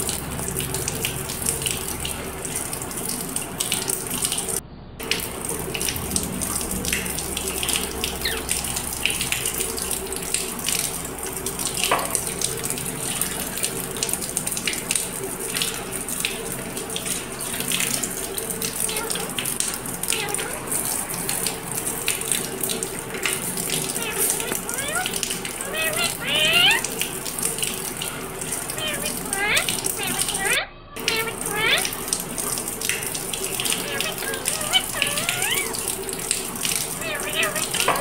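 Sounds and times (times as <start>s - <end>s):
tap water running and splashing: 0.0s - 38.0s.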